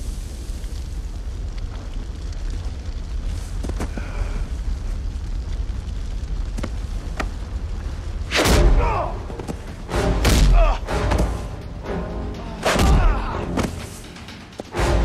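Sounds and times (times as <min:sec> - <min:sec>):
hissing smoke: 0:00.0 - 0:09.9.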